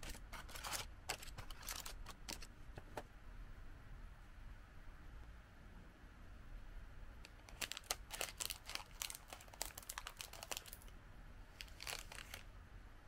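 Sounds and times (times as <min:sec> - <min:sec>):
scissors cutting wrapper: 0:00.0 - 0:02.5, 0:07.3 - 0:10.9, 0:11.6 - 0:12.5
snack wrapper crinkling: 0:00.0 - 0:02.5, 0:07.3 - 0:10.9, 0:11.6 - 0:12.5.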